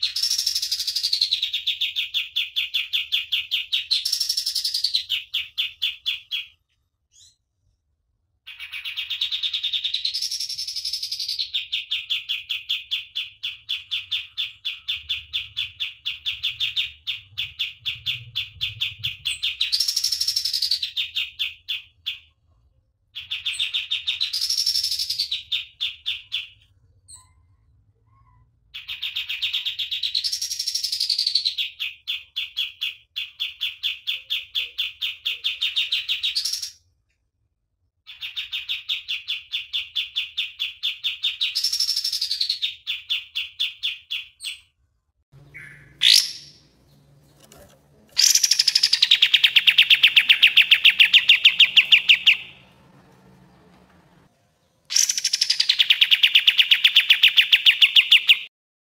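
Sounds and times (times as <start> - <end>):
songbird singing rapid notes: 45.4 - 47.6, 48.2 - 53.5, 54.9 - 58.5.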